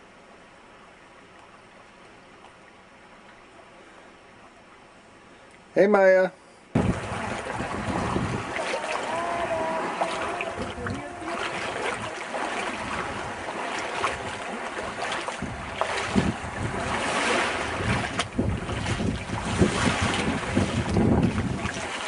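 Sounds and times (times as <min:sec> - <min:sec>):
small waves washing onto shore: 0:06.8 - 0:22.0
wind buffeting microphone: 0:06.8 - 0:22.0.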